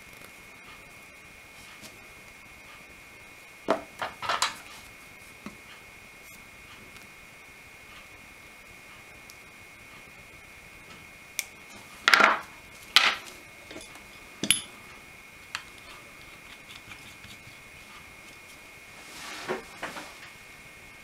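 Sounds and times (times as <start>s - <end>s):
faint high whine: 0.0s - 21.0s
metal tools clattering on workbench: 13.0s - 14.7s
soft rustle: 18.3s - 20.3s.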